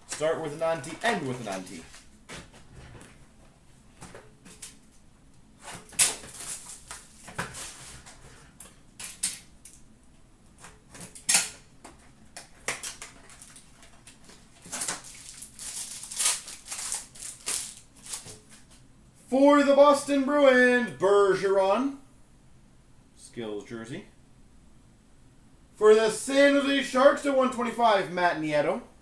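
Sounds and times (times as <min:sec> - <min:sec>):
wrappers crinkling and tearing: 0:00.1 - 0:02.1, 0:05.6 - 0:08.1, 0:12.7 - 0:18.6.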